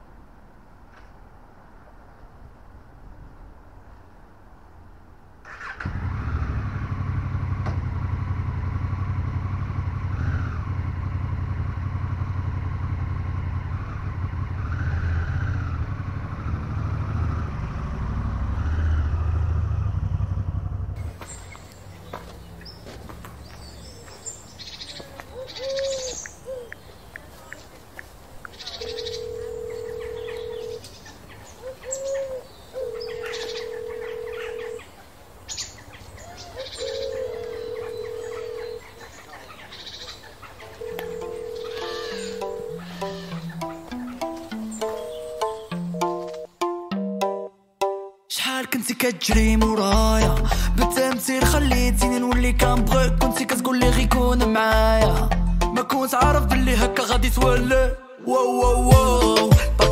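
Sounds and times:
motorcycle engine idling: 5.6 - 18.4, 19.3 - 23.9
birds chirping: 21.0 - 47.5.

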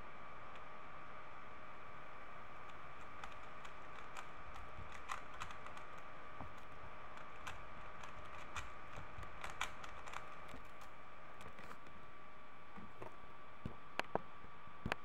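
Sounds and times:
steady background whine: 0.0 - 15.0
plastic puzzle cube clicking: 2.7 - 10.8.

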